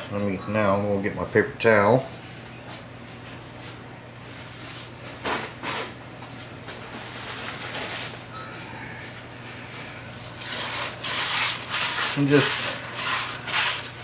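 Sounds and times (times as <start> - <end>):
steady low hum: 0.0 - 14.0
paper towel rubbing wok: 10.2 - 14.0
paper towel rustling: 10.3 - 14.0.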